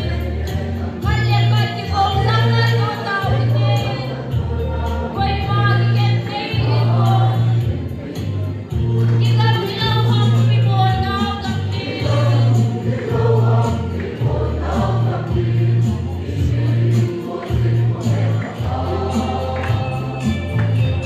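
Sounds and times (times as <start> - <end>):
group singing gospel song: 0.0 - 21.0.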